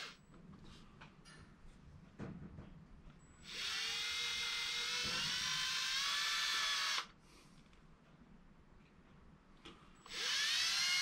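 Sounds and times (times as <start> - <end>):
cordless drill whine: 3.4 - 7.1, 10.0 - 11.0.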